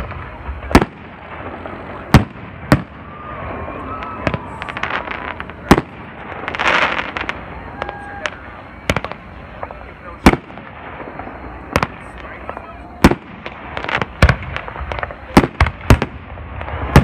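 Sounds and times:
firework crackling: 0.0s - 17.0s
firework shells bursting: 0.0s - 17.0s.

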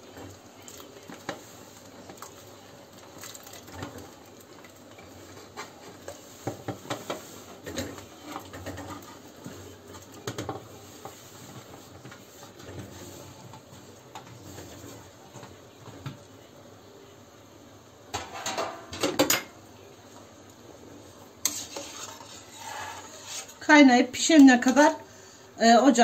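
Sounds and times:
dumplings scraping on metal tray: 5.4s - 9.3s, 21.4s - 23.7s.

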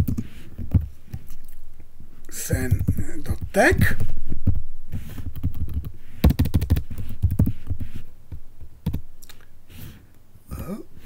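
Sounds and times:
typing on computer keyboard: 5.3s - 7.5s.

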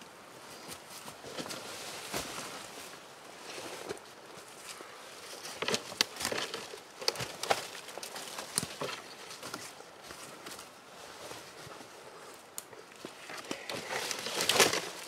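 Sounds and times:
twigs snapping: 12.5s - 15.0s.

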